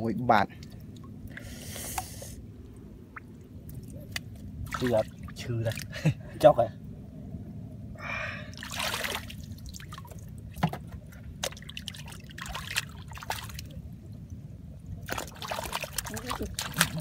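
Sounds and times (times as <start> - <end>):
water splashes and drips: 0.4 - 6.1, 8.5 - 17.0
hands sloshing in muddy water: 8.6 - 13.8, 15.0 - 17.0.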